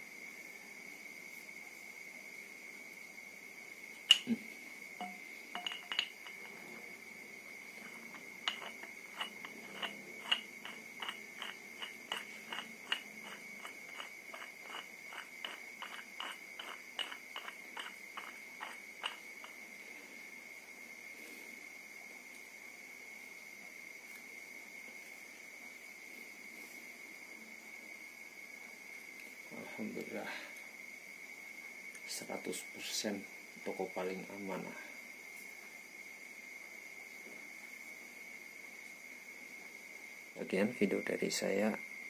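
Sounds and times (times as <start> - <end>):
steady high-pitched tone: 5.0 - 6.3
metal knock: 5.0 - 6.4.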